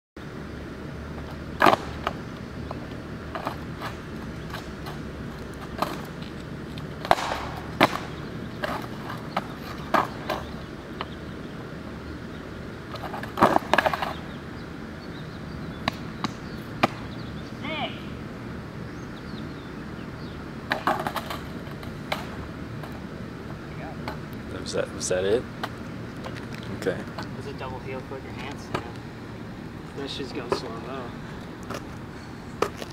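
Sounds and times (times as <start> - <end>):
skateboard deck clacking on asphalt: 1.1 - 11.2, 12.9 - 14.3, 15.7 - 17.2, 20.7 - 24.3, 28.4 - 29.1, 30.4 - 30.8, 32.6 - 32.9
skateboard clattering: 1.2 - 11.1, 12.9 - 14.3, 20.7 - 24.2.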